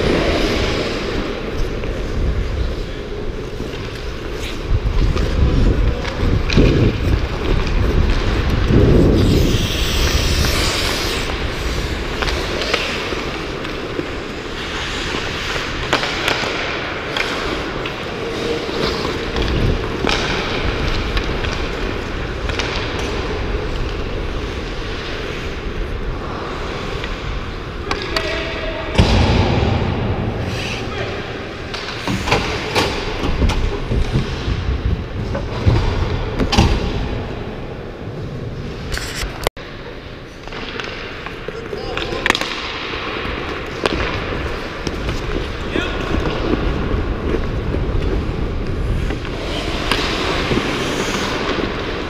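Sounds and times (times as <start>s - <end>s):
skate blades scraping on ice: 0.0s - 27.6s, 43.4s - 52.0s
wind rumbling on microphone: 1.4s - 12.4s, 33.1s - 37.1s
hockey sticks and puck clicking: 3.5s - 28.6s, 31.6s - 34.5s, 40.3s - 52.0s.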